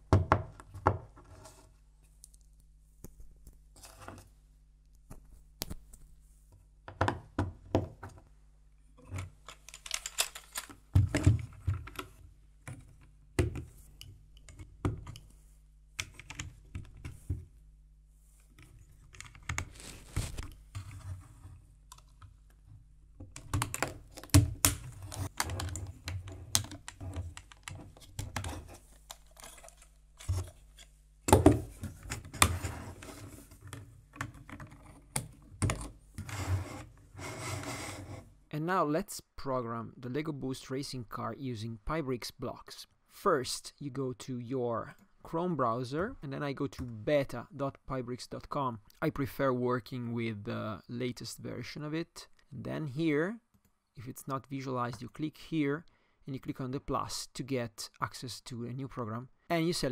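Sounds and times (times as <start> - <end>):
plastic parts clicking: 9.2 - 12.1, 23.2 - 31.5.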